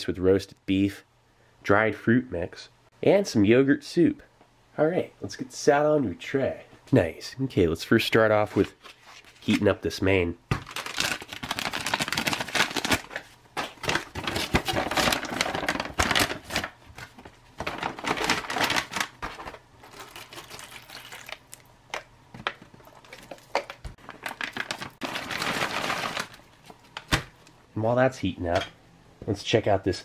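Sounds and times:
foil pouches crinkling: 0:10.6 - 0:27.3.

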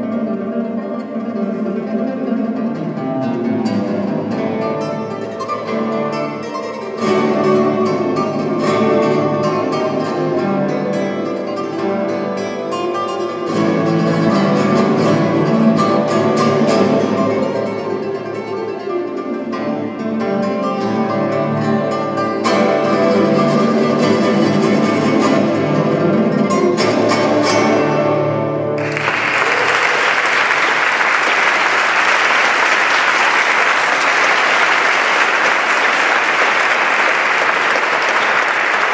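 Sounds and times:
classical guitar playing: 0:00.0 - 0:29.7
audience applause: 0:28.8 - 0:38.9.

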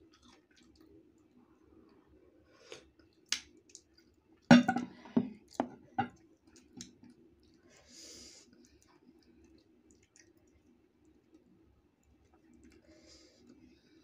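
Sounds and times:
ceramic bowl knocking on table: 0:04.5 - 0:06.1.

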